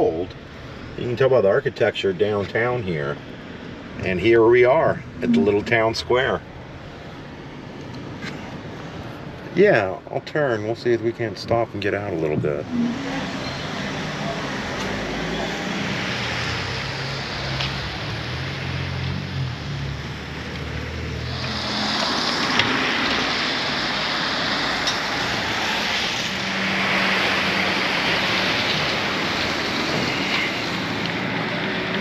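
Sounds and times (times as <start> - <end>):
car engine hum: 0.0 - 32.0
tyres hissing on wet pavement: 12.9 - 32.0.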